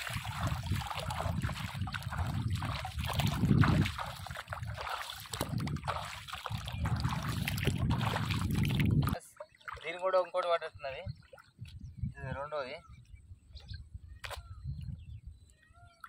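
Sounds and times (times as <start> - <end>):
wind on microphone: 0.0 - 9.2, 10.7 - 16.0
footsteps splashing through water: 0.0 - 10.5.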